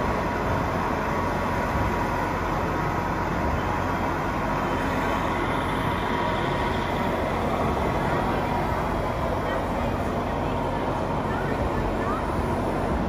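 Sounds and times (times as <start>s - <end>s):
hydraulic pump whine: 0.0s - 13.0s
busy exhibition hall noise: 4.7s - 13.0s.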